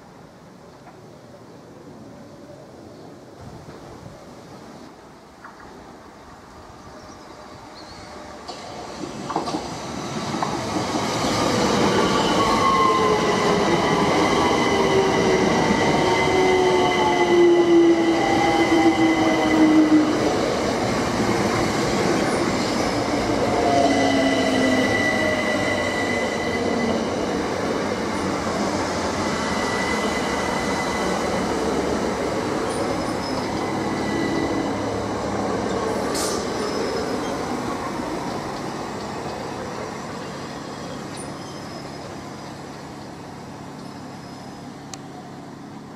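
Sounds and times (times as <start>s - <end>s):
train wheels rumbling on rails: 8.3s - 45.9s
high brake squeal: 22.6s - 27.1s, 29.4s - 31.4s, 32.6s - 35.0s, 36.1s - 37.6s, 40.4s - 42.6s, 43.8s - 44.9s.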